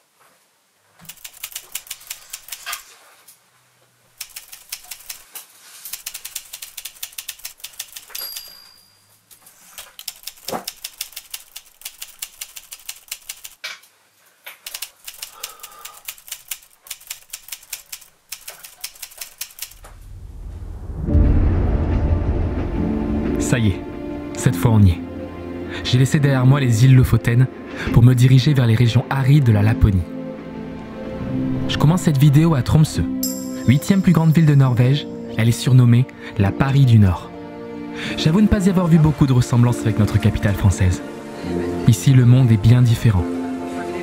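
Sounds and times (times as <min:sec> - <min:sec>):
typewriter keys clacking: 0:01.0 - 0:02.9, 0:04.2 - 0:08.7, 0:09.7 - 0:13.6, 0:14.6 - 0:19.8
typewriter bell ring: 0:06.0 - 0:09.2.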